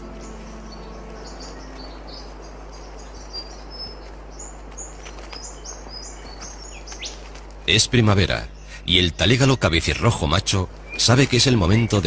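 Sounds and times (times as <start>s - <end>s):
soft music: 0.0s - 6.0s
small birds chirping: 0.0s - 12.0s.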